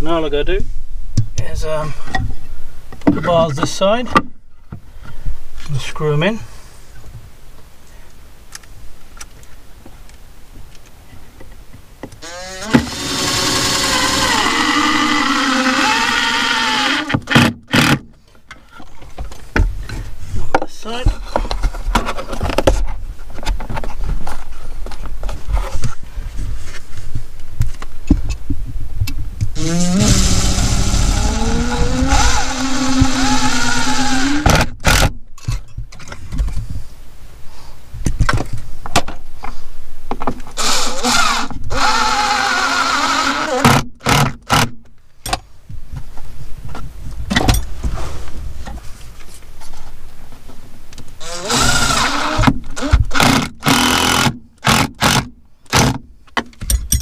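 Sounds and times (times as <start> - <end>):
cordless drill motor whine: 12.2 - 17.2, 29.6 - 34.6, 40.6 - 43.6, 51.2 - 54.3
handling knocks and clicks: 55.8 - 57.0.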